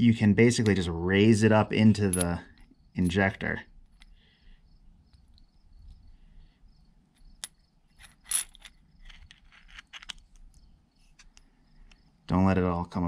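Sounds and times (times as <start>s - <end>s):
small steel parts clicking together: 1.9s - 4.2s, 7.2s - 10.6s.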